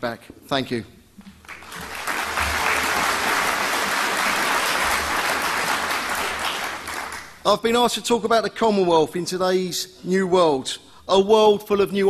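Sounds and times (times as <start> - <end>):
large audience applauding: 1.4 - 7.4.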